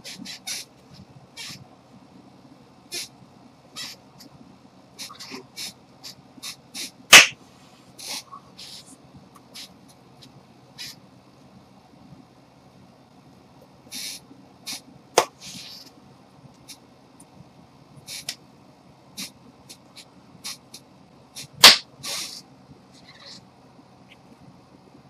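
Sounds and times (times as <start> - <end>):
hands swishing: 6.4 - 7.4, 21.4 - 22.4
hand claps: 7.2 - 7.4.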